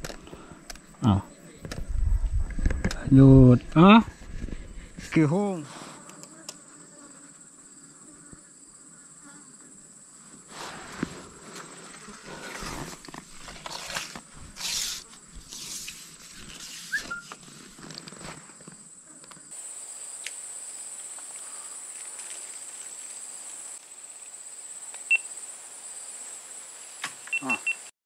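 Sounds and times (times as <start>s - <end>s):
leaves rustling: 10.4s - 18.8s, 19.6s - 27.8s
high-pitched insect trill: 13.2s - 17.8s, 18.5s - 27.9s.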